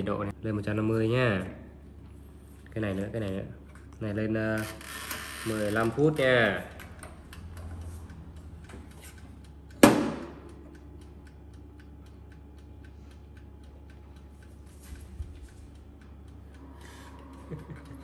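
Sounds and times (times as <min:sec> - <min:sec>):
mechanical timer ticking: 0:04.5 - 0:18.0
sharp knock: 0:09.8 - 0:10.4.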